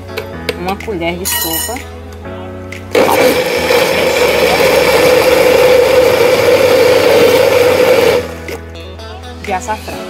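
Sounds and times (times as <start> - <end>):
blender motor whine: 3.0 - 8.6.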